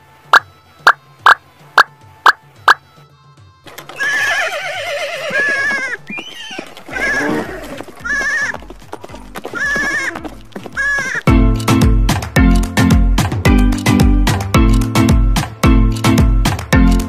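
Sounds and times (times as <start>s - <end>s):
animal bleating: 3.9s - 8.7s, 9.4s - 11.4s
low music beat: 10.4s - 17.0s.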